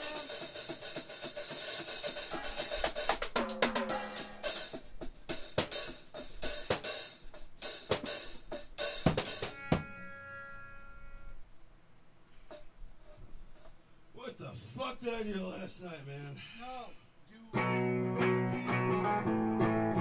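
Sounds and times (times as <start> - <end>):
drum kit playing: 0.0 - 10.0.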